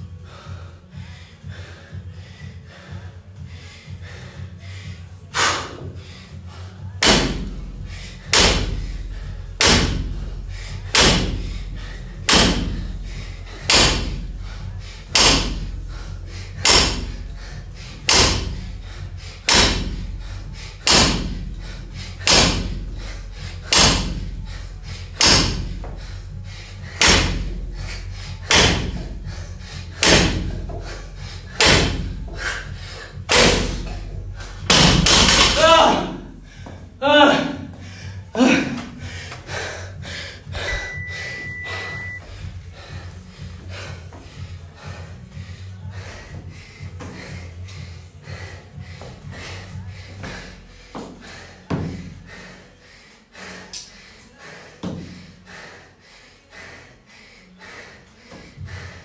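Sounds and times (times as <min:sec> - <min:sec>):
barbell thudding on wooden platform: 0:07.0 - 0:07.6, 0:08.3 - 0:09.0, 0:09.6 - 0:10.3, 0:10.9 - 0:11.6, 0:12.2 - 0:12.9, 0:13.6 - 0:14.3, 0:15.1 - 0:15.7, 0:16.6 - 0:17.2, 0:18.1 - 0:18.6, 0:19.4 - 0:20.0, 0:20.8 - 0:21.4, 0:22.2 - 0:22.8, 0:23.6 - 0:24.3, 0:25.2 - 0:26.0, 0:27.0 - 0:27.6, 0:28.5 - 0:29.2, 0:30.0 - 0:30.9, 0:31.5 - 0:32.4, 0:33.3 - 0:34.0, 0:34.6 - 0:36.2.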